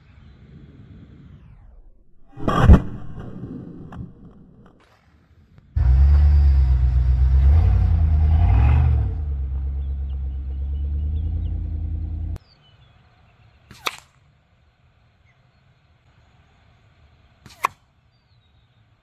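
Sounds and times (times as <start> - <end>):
low engine rumble: 5.8 - 12.4.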